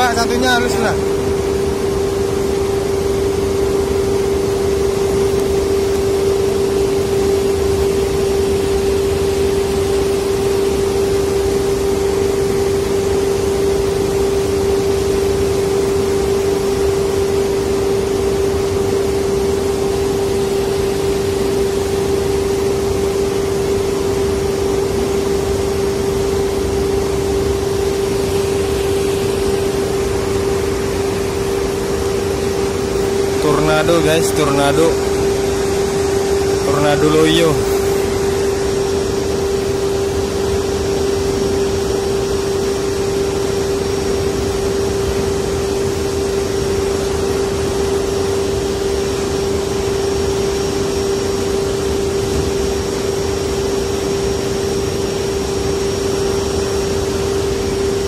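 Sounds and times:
machinery hum: 0:00.0 - 0:58.0
even hiss: 0:20.6 - 0:58.0.

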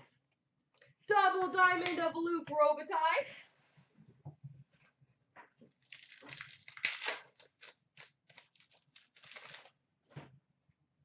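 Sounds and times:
foil wrapper crinkling: 0:05.7 - 0:09.8.

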